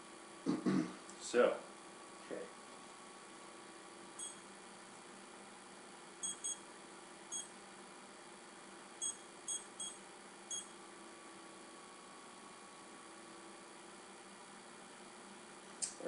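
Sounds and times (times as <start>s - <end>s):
short electronic beeps: 4.2s - 4.4s, 6.2s - 6.6s, 9.0s - 10.7s.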